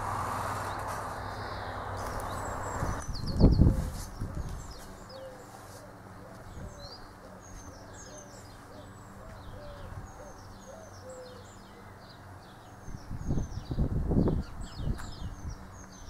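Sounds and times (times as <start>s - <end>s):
small birds chirping: 0.3s - 16.0s
pigeon cooing: 3.6s - 11.9s.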